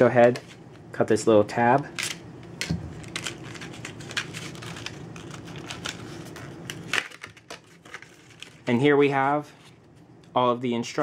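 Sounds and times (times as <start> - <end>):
steady low hum: 0.0 - 11.0
packaging crinkling and clicking: 1.7 - 8.8.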